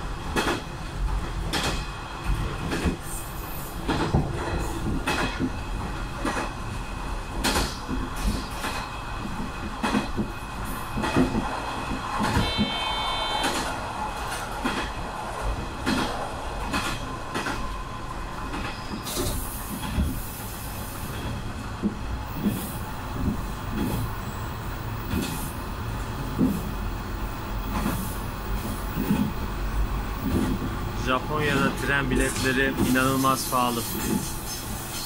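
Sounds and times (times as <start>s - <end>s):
train wheels rumbling: 0.0s - 35.0s
short high beep: 12.4s - 13.7s
hiss: 19.0s - 21.1s.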